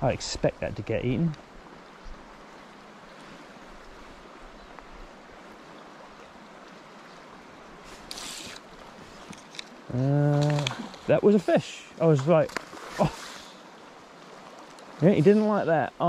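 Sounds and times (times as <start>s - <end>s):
river water rushing: 0.0s - 16.0s
fly line swishing off water: 7.8s - 9.7s, 12.2s - 13.7s.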